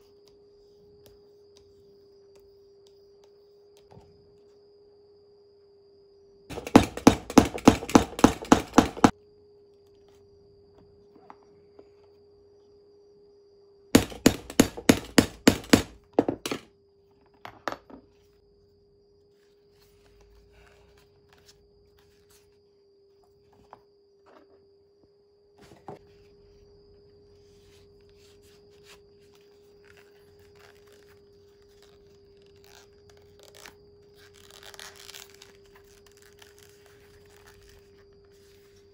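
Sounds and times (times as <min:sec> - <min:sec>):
hammer tapping metal tool: 0:06.5 - 0:09.1, 0:14.0 - 0:16.6
leather handling: 0:29.9 - 0:37.8.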